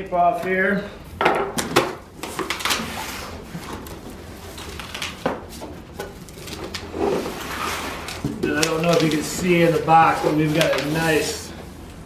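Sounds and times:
cardboard rustling: 2.2 - 11.4.

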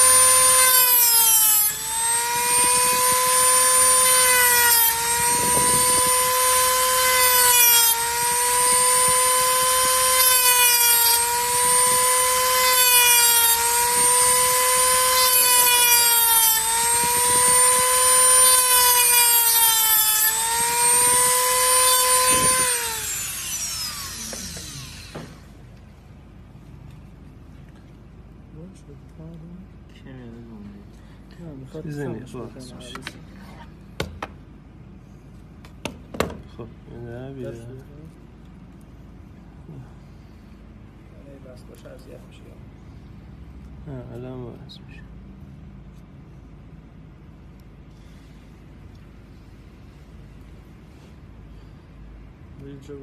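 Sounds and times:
rotary tool grinding metal: 0.0 - 25.6.

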